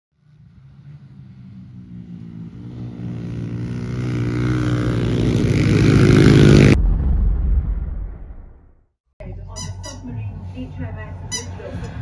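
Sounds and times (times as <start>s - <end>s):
pit bike engines running: 0.2s - 6.8s, 9.2s - 12.0s
low rumble: 6.7s - 12.0s.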